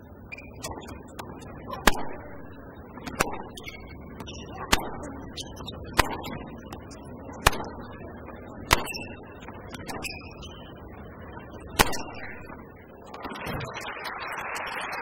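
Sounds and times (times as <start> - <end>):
tennis ball struck by rackets: 1.8 - 6.8, 7.4 - 10.5, 11.7 - 12.6.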